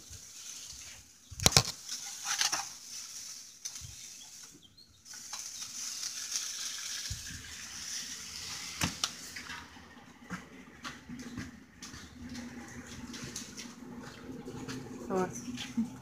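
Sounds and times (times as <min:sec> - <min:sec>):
food sizzling on a grill: 0:01.8 - 0:09.5.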